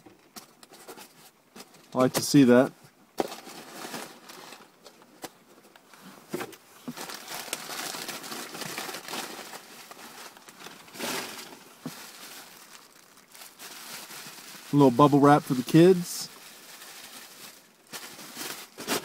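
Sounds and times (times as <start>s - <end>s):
bubble wrap crackles: 1.9s - 6.1s, 6.7s - 19.0s
bubble wrap crinkling: 3.2s - 6.1s, 6.7s - 19.0s.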